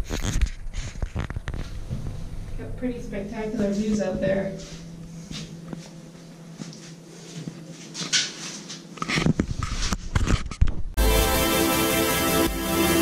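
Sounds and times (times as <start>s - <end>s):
faint steady hum: 0.0s - 8.1s
background music: 11.0s - 13.0s.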